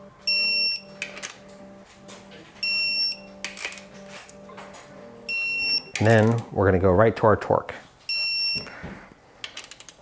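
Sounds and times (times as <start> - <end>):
torque wrench beeping: 5.3 - 6.4.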